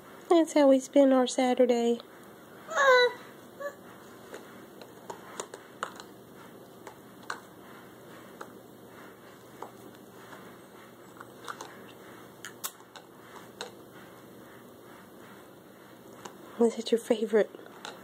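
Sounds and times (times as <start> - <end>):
faint room hiss: 0.0 - 18.0.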